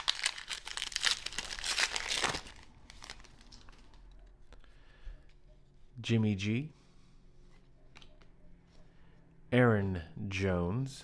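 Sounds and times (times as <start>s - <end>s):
foil wrapper crinkling and tearing: 0.0s - 4.1s.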